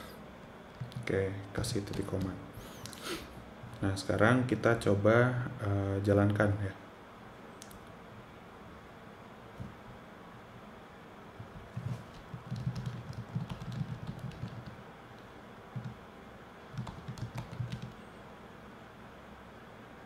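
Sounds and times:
computer keyboard typing: 0.7 - 1.1, 1.7 - 3.0, 11.7 - 16.0, 16.7 - 18.0.

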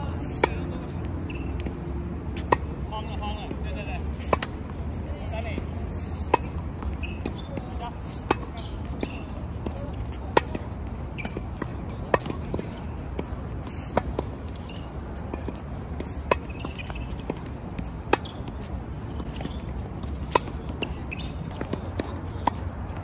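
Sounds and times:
tennis racket hitting ball: 19.2 - 22.7.

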